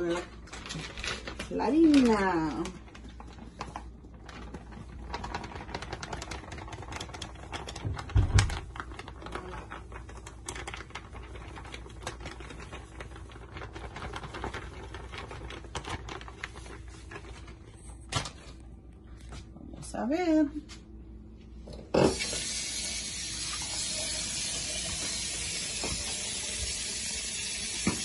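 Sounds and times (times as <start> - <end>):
plastic bag crinkling: 0.0 - 18.1.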